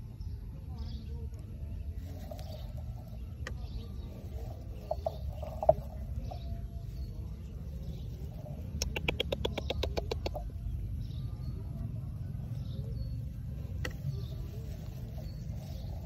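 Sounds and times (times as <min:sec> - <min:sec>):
steady low rumble: 0:00.0 - 0:16.0
animal chirping clicks: 0:08.8 - 0:10.5.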